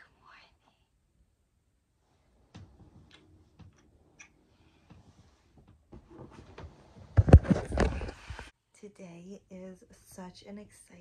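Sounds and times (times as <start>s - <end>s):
bedding rustling: 4.8s - 8.5s.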